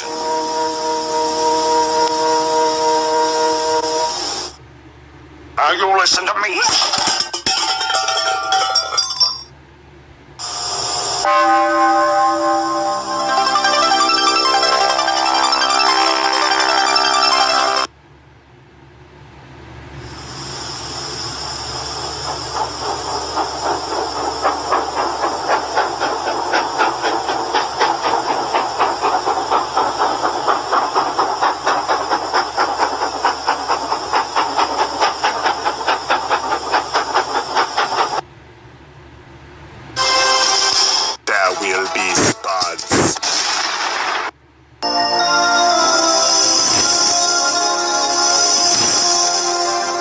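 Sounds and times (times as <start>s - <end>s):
pulsing hissing sound effect: 45.6s - 50.0s.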